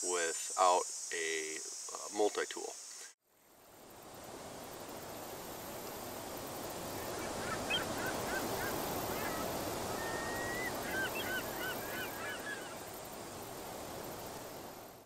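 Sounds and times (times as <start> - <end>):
steady rushing background wash: 3.8 - 15.0
geese honking: 6.9 - 12.9.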